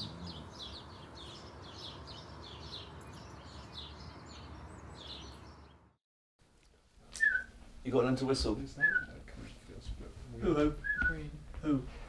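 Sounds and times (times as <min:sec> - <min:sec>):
small birds chirping: 0:00.0 - 0:06.0, 0:07.1 - 0:07.6
outdoor ambient hiss: 0:00.0 - 0:12.0.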